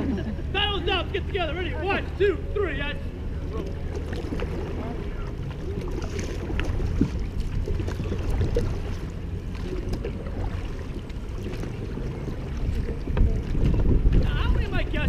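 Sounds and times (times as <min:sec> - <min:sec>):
paddles dipping and splashing: 0:00.0 - 0:15.0
wind on microphone: 0:05.1 - 0:15.0.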